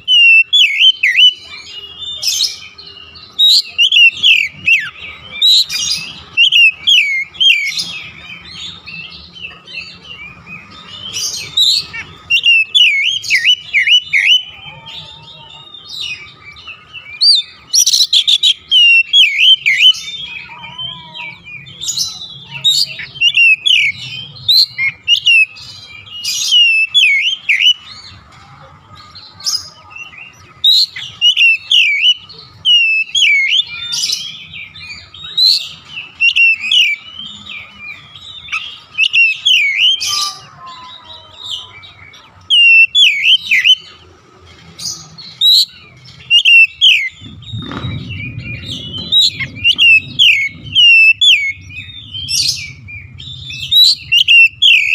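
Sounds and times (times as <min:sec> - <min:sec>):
bird singing whistled phrases: 0:00.0 - 0:08.9, 0:09.5 - 0:27.9, 0:30.0 - 0:40.5, 0:41.5 - 0:44.0, 0:45.2 - 0:54.9
low rumble: 0:47.1 - 0:54.9.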